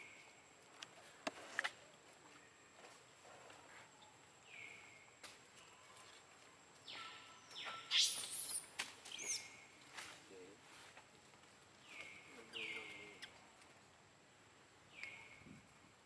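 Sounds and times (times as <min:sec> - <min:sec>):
monkeys squeaking: 0:07.0 - 0:09.5
monkey screaming: 0:07.8 - 0:08.6.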